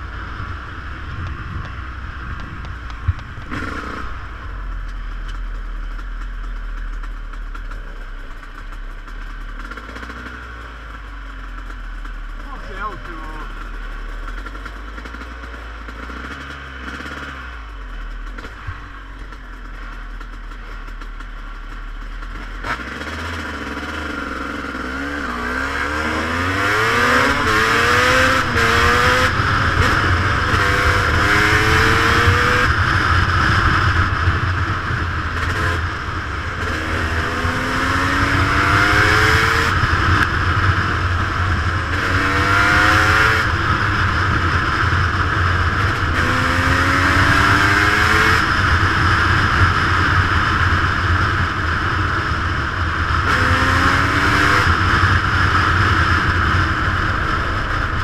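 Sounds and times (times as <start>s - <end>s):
dirt bike engine revving: 0.0s - 4.6s, 9.1s - 10.7s, 12.1s - 17.6s, 22.2s - 58.0s
wind noise on microphone: 0.0s - 4.8s.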